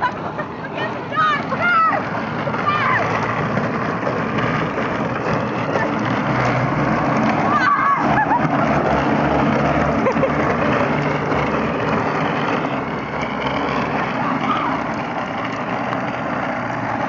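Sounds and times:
small wheels rolling on asphalt: 0:00.0 - 0:17.0
person shouting or laughing: 0:07.5 - 0:08.5.

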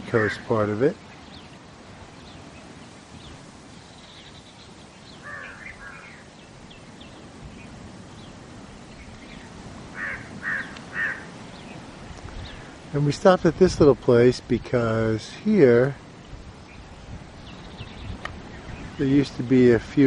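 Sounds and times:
steady background hiss: 0:00.0 - 0:20.0
crows cawing: 0:00.1 - 0:00.5, 0:05.2 - 0:06.3, 0:09.9 - 0:11.4
faint bird chirps: 0:00.1 - 0:12.9, 0:16.2 - 0:19.4.

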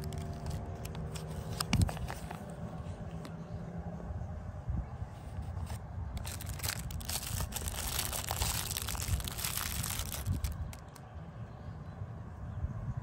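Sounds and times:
plastic wrapper crinkling and tearing: 0:00.0 - 0:02.5, 0:05.5 - 0:11.0.

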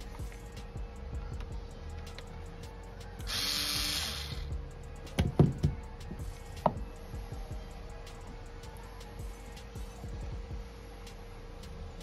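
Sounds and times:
soft background music: 0:00.0 - 0:12.0
screwdriver knocks and clicks: 0:05.2 - 0:05.8.

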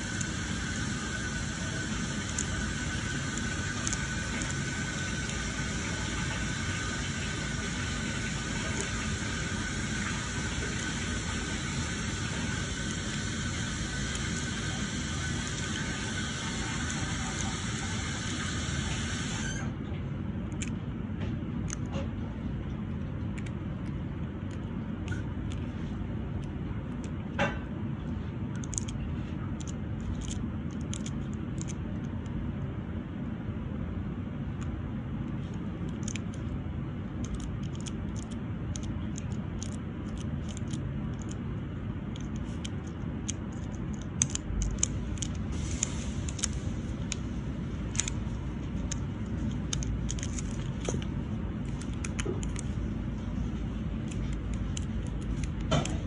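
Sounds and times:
low background rumble: 0:19.8 - 0:56.0
acrylic nails clicking: 0:28.5 - 0:29.0, 0:37.2 - 0:41.4, 0:42.1 - 0:47.2.

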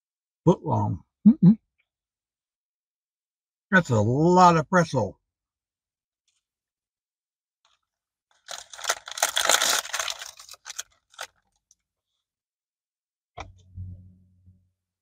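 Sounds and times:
paper wrapper crinkling: 0:07.7 - 0:11.8
brief low hum: 0:13.4 - 0:14.9.

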